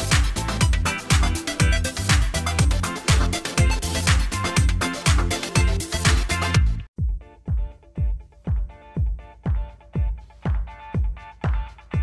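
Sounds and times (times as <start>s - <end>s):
background music with kick drum: 0.0s - 12.0s.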